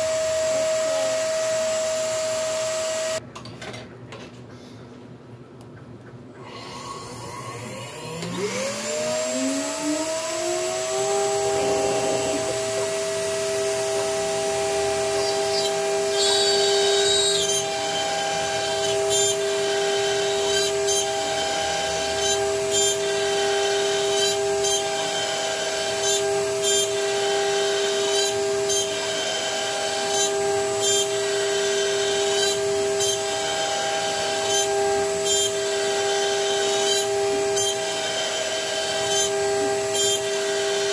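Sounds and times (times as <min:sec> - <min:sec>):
router spindle whine: 0:00.0 - 0:03.2, 0:06.4 - 0:40.9
end mill rasping wood: 0:10.0 - 0:40.9.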